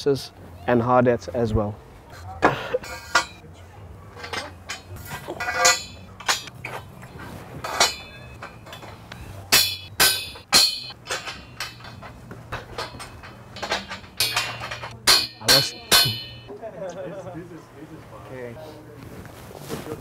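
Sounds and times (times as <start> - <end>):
hammer striking steel tubes: 2.8 - 3.4, 4.2 - 16.5.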